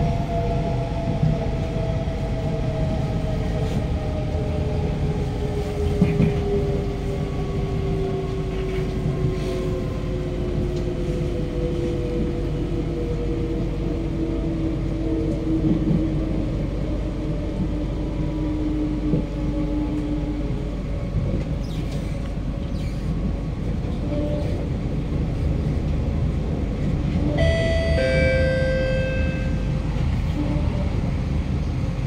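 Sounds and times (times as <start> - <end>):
train wheels rumbling on rail: 0.0 - 32.0
steady higher tones: 27.4 - 29.9.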